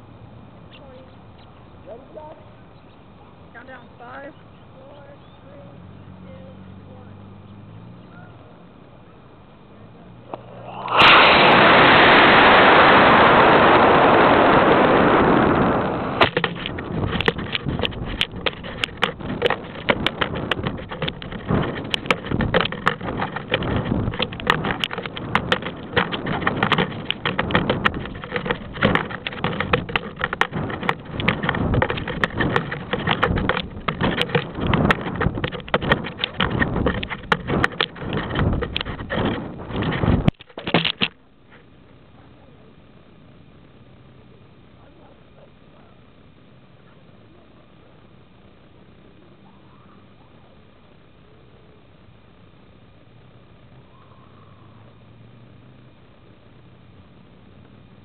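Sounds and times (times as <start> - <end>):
rocket motor roaring: 10.2 - 41.0
wind buffeting camera: 10.2 - 41.2.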